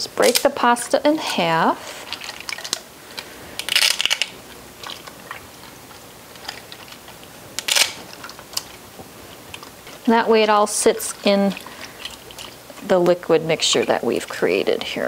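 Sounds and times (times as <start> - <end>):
dry pasta snapping: 2.1 - 10.1.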